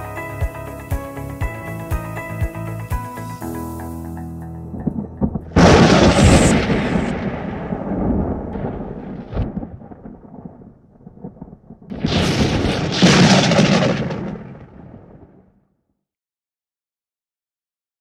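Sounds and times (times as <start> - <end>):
rushing hit with deep rumble: 4.8 - 10.4.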